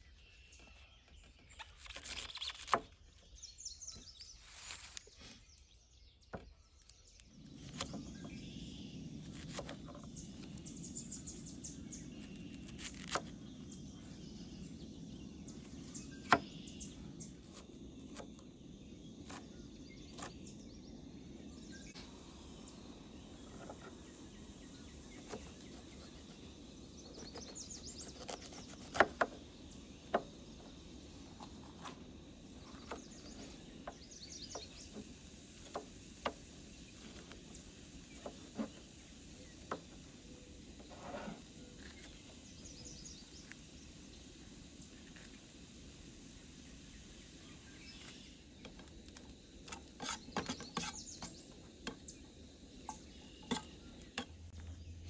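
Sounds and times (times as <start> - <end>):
birds chirping: 0.0 - 55.0
steady low background noise: 7.0 - 49.7.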